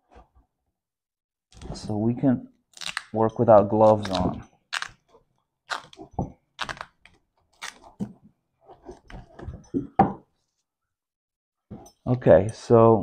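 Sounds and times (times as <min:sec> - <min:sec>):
plastic wiring harness crackling: 0:03.8 - 0:05.0, 0:06.6 - 0:07.8.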